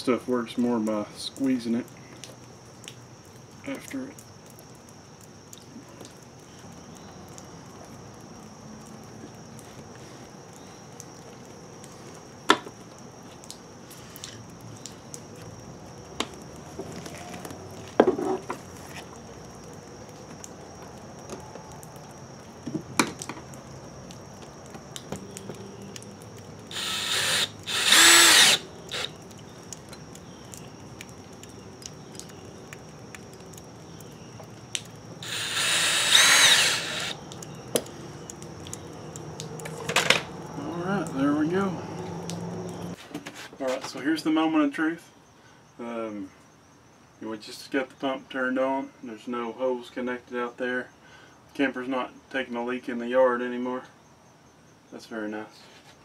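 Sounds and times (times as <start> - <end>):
cordless drill motor whine: 26.7 - 29.2, 35.2 - 37.2.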